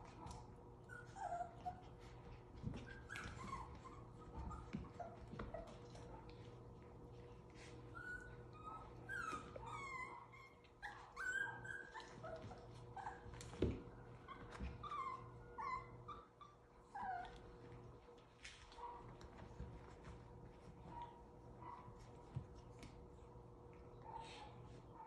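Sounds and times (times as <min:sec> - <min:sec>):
puppies whimpering and yipping: 0:00.8 - 0:06.0, 0:07.7 - 0:17.6.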